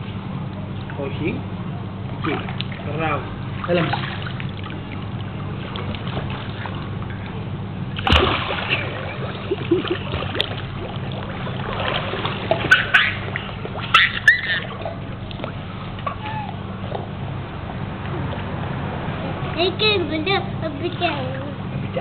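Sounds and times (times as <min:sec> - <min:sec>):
water splashing and sloshing: 0:02.0 - 0:22.0
big splash into pool: 0:08.0 - 0:10.9.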